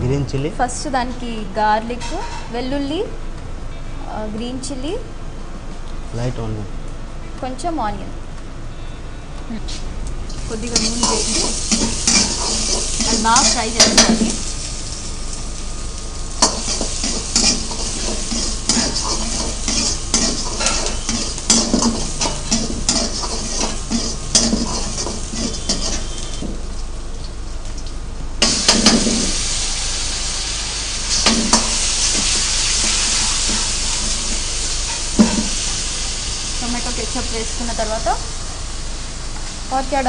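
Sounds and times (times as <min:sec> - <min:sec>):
oil sizzling in a wok: 0:10.1 - 0:40.0
sauce hissing in hot wok: 0:10.4 - 0:26.7, 0:28.4 - 0:40.0.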